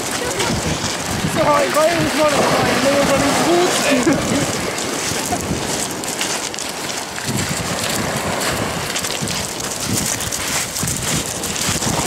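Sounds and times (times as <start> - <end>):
footsteps crunching on pebbles: 0.0 - 12.0
surf breaking on shingle: 0.0 - 12.0
wind buffeting microphone: 0.0 - 12.0.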